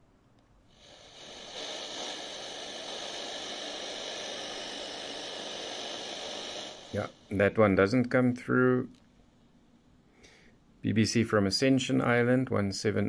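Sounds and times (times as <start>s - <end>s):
radio static hiss: 0.8s - 8.9s.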